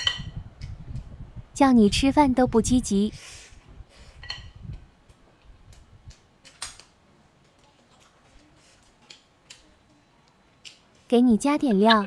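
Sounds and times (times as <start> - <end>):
chopsticks tapping tableware: 4.2 - 4.6.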